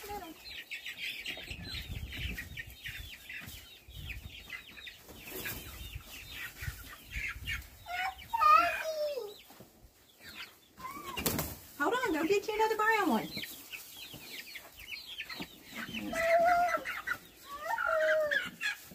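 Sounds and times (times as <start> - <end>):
chickens clucking: 0.0 - 18.9
chicken drawn-out cry: 14.4 - 18.9.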